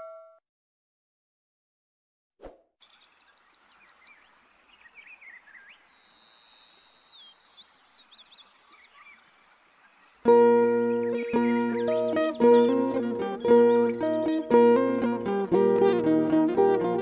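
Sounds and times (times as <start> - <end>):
wild birds chirping and whistling: 2.8 - 14.4.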